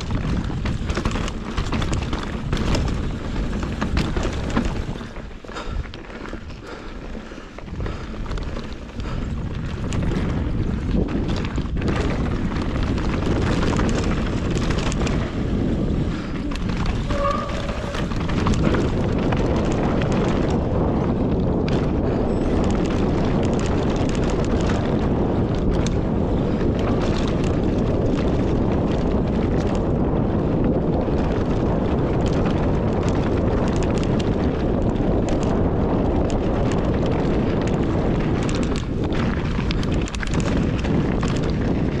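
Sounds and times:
trail rumble: 0.0s - 42.0s
wind rushing over microphone: 0.0s - 42.0s
brief squeak: 17.0s - 18.1s.

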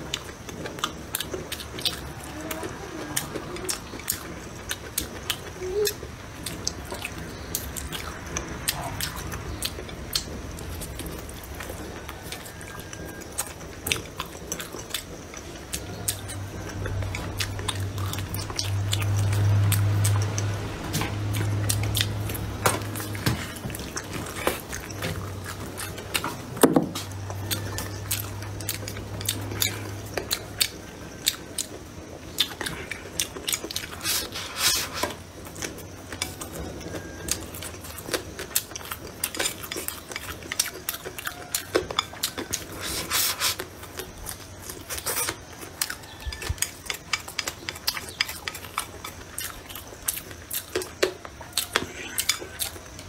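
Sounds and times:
person chewing food: 0.0s - 53.0s
low hum: 5.7s - 32.1s.

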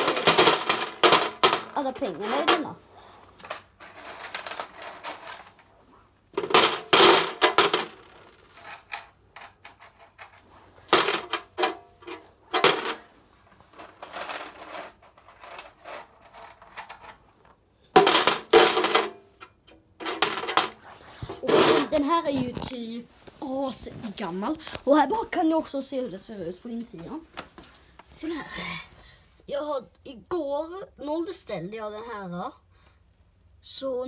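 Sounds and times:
coins clattering against metal: 0.0s - 1.7s, 3.5s - 5.5s, 6.4s - 8.0s, 18.0s - 19.1s.

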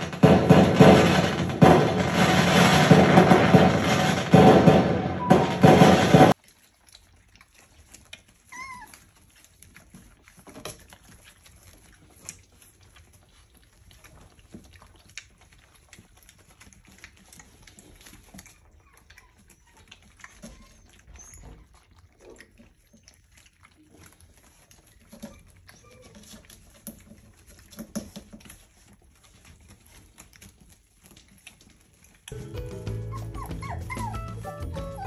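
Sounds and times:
puppies scuffling and tapping: 0.0s - 35.0s
puppy squeak: 8.5s - 9.0s, 18.5s - 21.9s, 25.2s - 26.4s, 32.8s - 35.0s.

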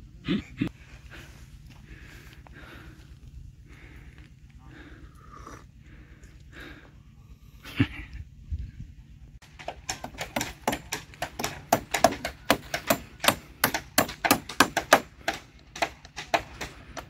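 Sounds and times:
hammers driving nails into wood: 9.4s - 17.0s.

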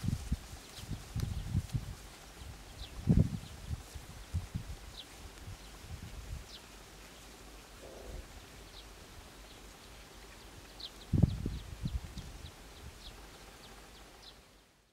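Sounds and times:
small birds chirping: 0.5s - 14.9s.

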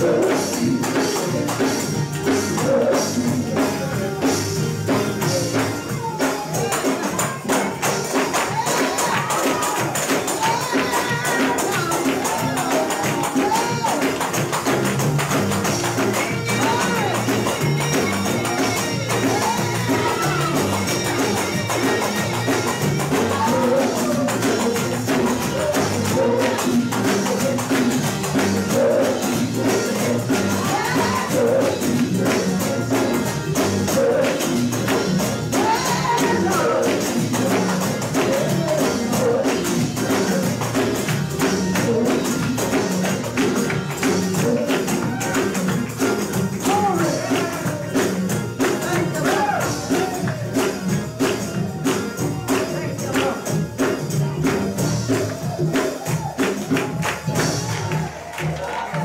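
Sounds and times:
drum kit: 0.0s - 59.0s
gospel band playing: 0.0s - 59.0s
organ: 0.0s - 59.0s
electric bass: 14.3s - 55.8s.

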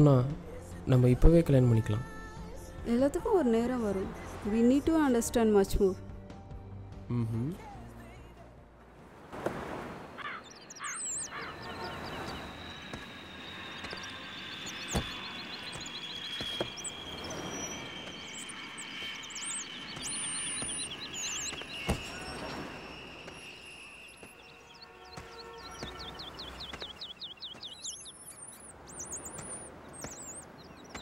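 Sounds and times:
birds chirping and trilling: 10.1s - 31.0s.

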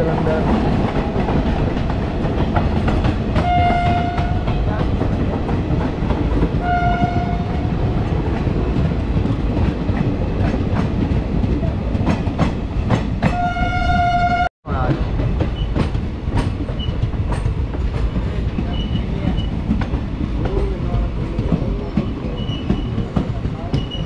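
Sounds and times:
rail joint clicks: 0.0s - 24.0s
train wheels rumbling: 0.0s - 24.0s
locomotive horn blasts: 3.4s - 4.5s, 6.6s - 7.5s, 13.4s - 14.5s.

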